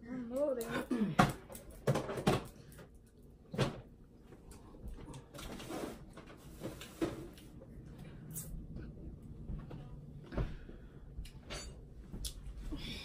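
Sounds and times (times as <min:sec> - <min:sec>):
knocks and clatters in cabinet: 0:01.2 - 0:02.5.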